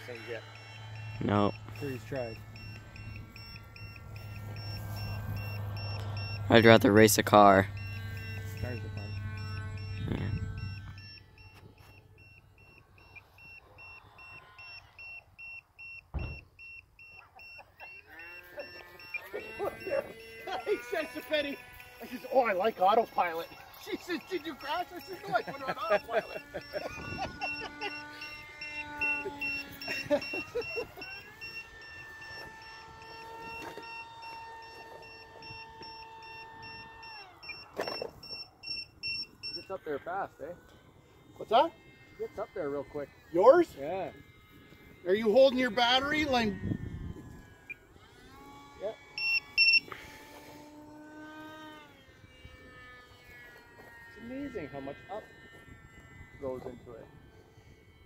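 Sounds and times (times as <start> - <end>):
short electronic beep: 0.0 - 6.8, 7.6 - 20.7, 49.2 - 49.8
electric jet motor whine: 0.0 - 58.0
short high electronic beeps: 49.2 - 49.8.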